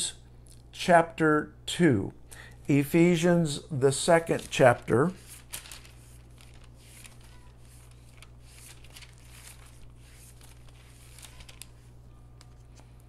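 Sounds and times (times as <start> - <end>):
thin pages rustling: 4.3 - 13.0.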